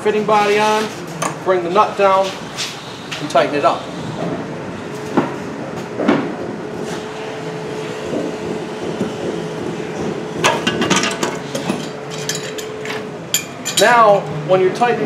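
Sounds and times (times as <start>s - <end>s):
steady background hum: 0.0s - 15.0s
knocks and clinks of tools: 10.4s - 14.0s.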